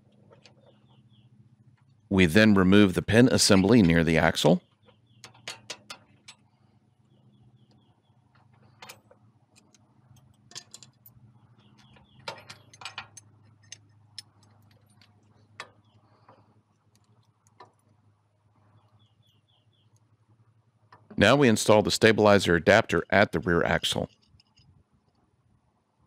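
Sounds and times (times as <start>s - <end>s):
metallic clinks and taps: 3.4s - 4.0s, 8.4s - 16.4s, 23.8s - 24.7s.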